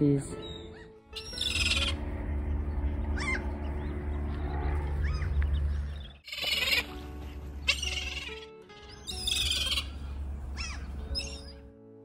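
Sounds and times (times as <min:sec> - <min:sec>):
gulls calling: 0:00.4 - 0:11.7
steady low rumble: 0:01.2 - 0:06.2, 0:09.2 - 0:11.6.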